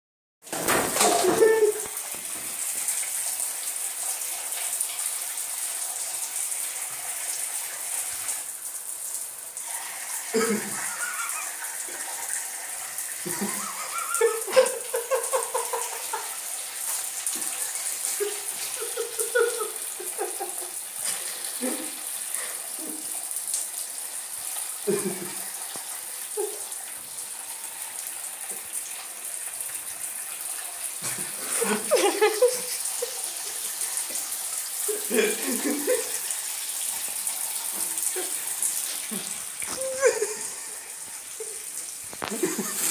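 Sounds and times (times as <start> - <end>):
shower water running: 0.4 - 42.9
ferret clucking chuckles: 10.4 - 12.1, 13.3 - 16.3.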